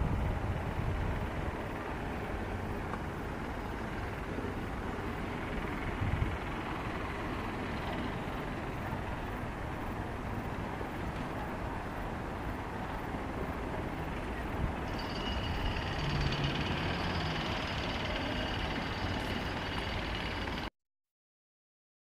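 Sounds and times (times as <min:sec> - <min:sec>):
wind buffeting microphone: 0:00.0 - 0:16.8
open-air ambient hiss: 0:00.0 - 0:20.7.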